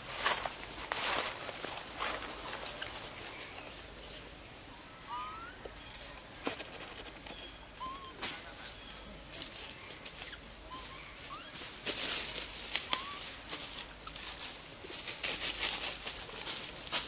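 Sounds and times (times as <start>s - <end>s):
leaves and twigs rustling: 0.0s - 17.0s.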